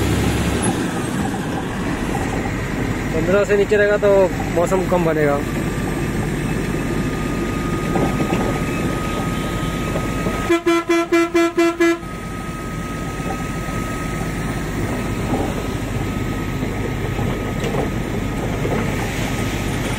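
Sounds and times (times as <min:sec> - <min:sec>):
diesel truck engine drone: 0:00.0 - 0:19.9
road noise: 0:00.0 - 0:19.9
vehicle horn tooting: 0:10.4 - 0:12.1.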